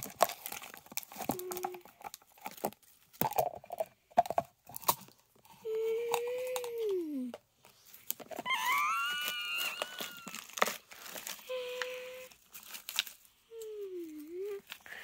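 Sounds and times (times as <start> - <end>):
paper crinkling and rustling: 0.0 - 3.3, 7.6 - 15.0
toy whines: 8.4 - 10.8.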